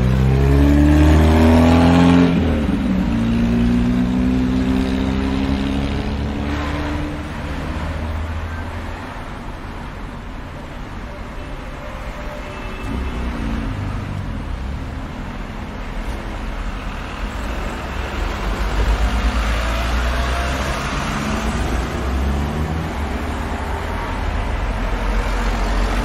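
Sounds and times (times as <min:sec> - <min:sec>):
cars driving past: 0:00.0 - 0:09.5, 0:12.8 - 0:26.0.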